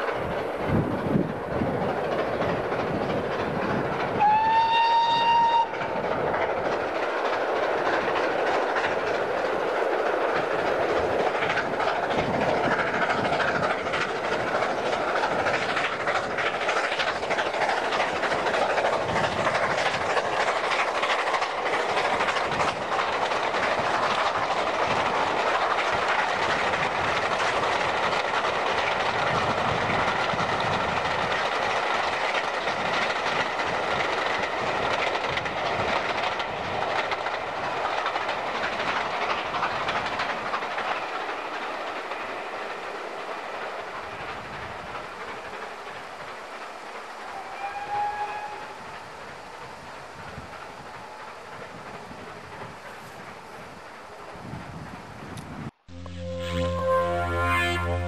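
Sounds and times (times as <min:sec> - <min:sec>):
train wheels clattering on rails: 0:00.0 - 0:55.7
steam locomotive whistle: 0:04.2 - 0:05.8, 0:47.3 - 0:48.8, 0:55.9 - 0:58.0.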